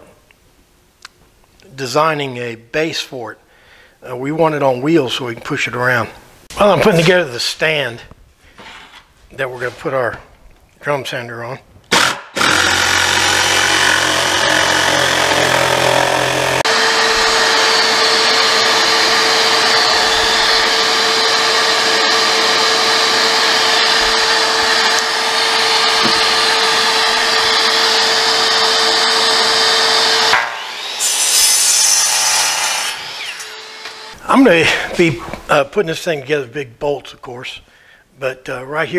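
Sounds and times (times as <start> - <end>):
jigsaw cutting plywood: 11.9 - 34.2
miter saw cutting board: 11.9 - 34.2.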